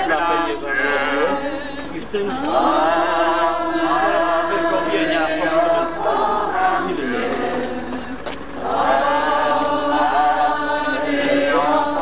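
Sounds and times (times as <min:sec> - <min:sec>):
crowd singing a hymn: 0:00.0 - 0:12.0.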